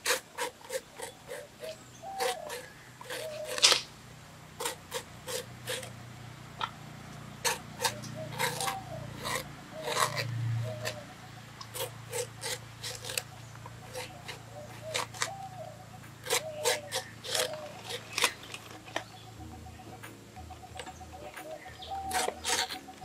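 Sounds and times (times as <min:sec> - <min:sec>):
knife slicing crisp cuts: 0:00.0 - 0:03.9, 0:04.6 - 0:05.9, 0:07.4 - 0:11.0, 0:16.2 - 0:18.6, 0:22.0 - 0:22.9.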